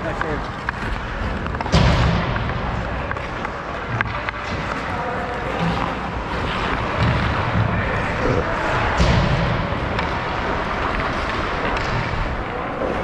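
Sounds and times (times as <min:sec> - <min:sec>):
stick and puck clicks: 0:00.0 - 0:07.6, 0:09.8 - 0:13.0
skate blades scraping ice: 0:00.1 - 0:02.0, 0:02.7 - 0:08.6.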